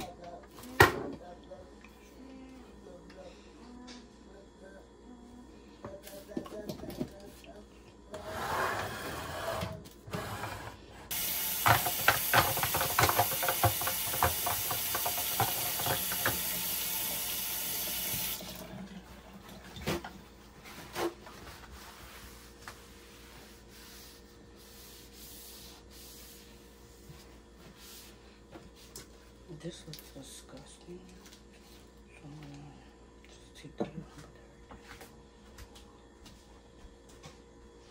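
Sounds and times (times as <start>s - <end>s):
kitchen tap running: 11.1s - 20.1s
dishes clattering: 11.5s - 16.5s.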